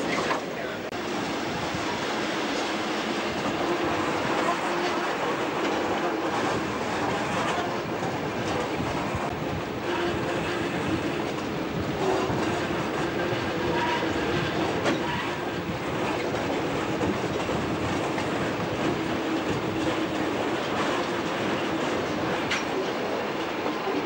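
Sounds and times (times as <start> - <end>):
railcar rolling with low drone: 0.0 - 24.0
wheels clicking over rail joints: 14.6 - 24.0.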